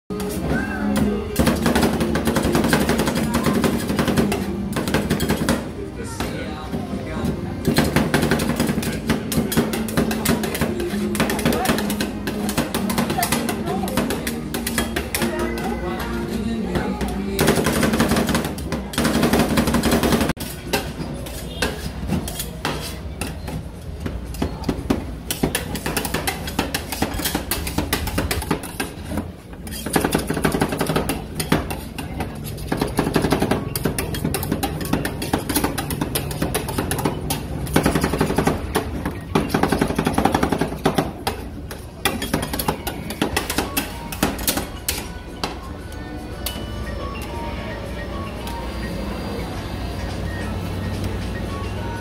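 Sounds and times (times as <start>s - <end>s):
background music: 0.1s - 20.3s, 42.2s - 52.0s
spatulas tapping and scraping metal: 7.6s - 45.6s.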